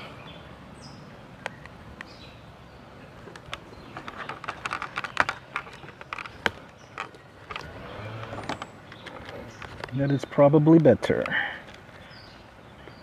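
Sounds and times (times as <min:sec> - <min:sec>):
plastic clicks and rustles: 0:03.2 - 0:12.2.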